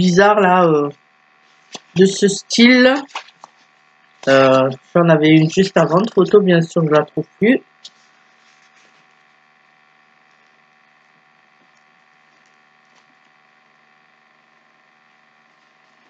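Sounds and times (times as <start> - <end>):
low electrical hum: 0.0 - 16.0
book pages flicking: 1.7 - 2.0, 2.9 - 4.6.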